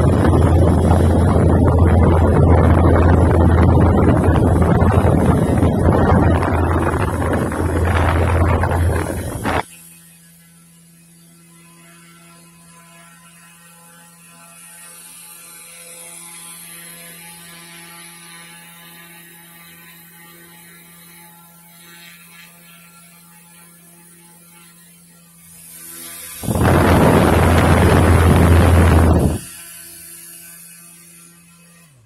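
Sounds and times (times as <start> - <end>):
hairdryer motor buzzing hum: 0.0 - 10.0, 17.0 - 32.0.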